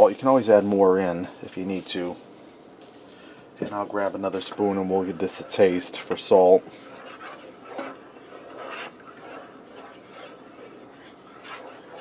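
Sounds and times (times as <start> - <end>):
wooden spoon scraping a pot: 3.6 - 12.0.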